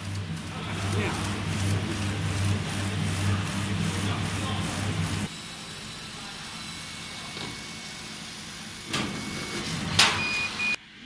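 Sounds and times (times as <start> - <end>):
faint motor whine: 0.0 - 11.0
short high beeps: 10.2 - 10.8.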